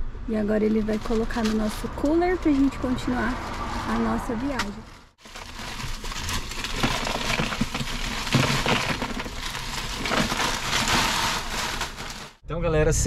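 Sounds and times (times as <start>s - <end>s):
ice cubes clattering into cooler: 5.2s - 12.4s.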